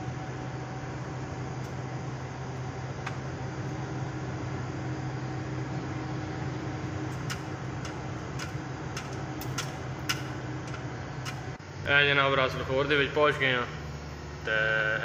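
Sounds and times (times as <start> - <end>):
truck engine and road noise: 0.0 - 11.8.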